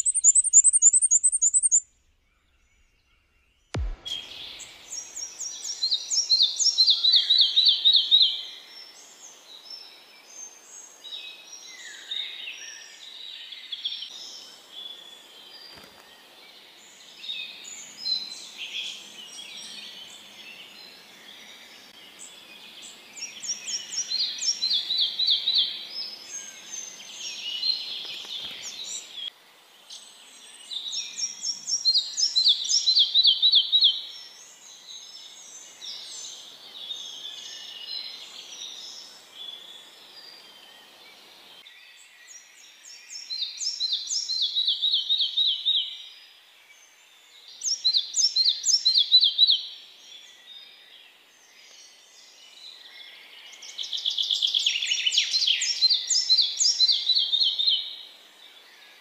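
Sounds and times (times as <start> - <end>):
flycatcher singing: 0.0 - 1.8.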